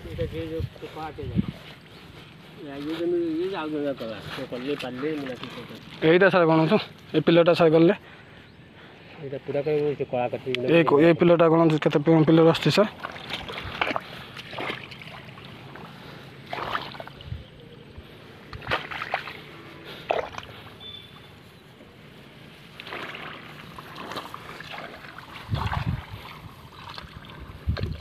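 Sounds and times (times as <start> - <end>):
wind rumble on microphone: 0.0 - 2.3, 17.0 - 18.8, 25.2 - 28.0
rice plants rustling: 0.0 - 7.2, 12.6 - 28.0.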